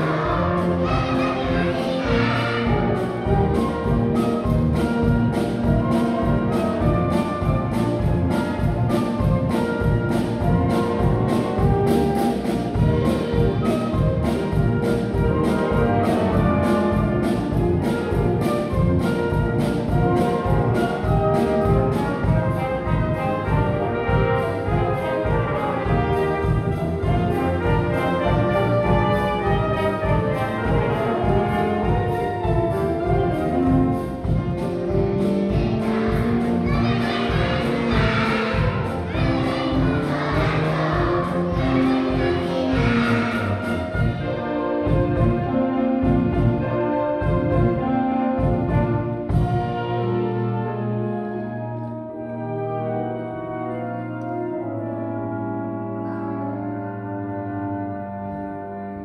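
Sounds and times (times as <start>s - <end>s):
drum kit beat: 0.0s - 50.0s
wind band playing: 0.0s - 59.0s.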